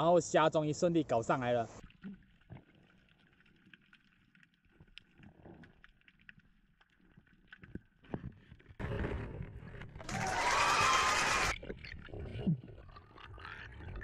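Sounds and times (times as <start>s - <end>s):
faint underwater clicks and knocks: 1.8s - 10.0s.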